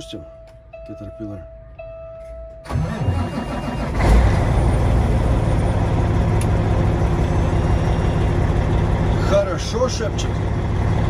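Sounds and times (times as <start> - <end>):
diesel engine starting and idling: 2.6 - 11.0.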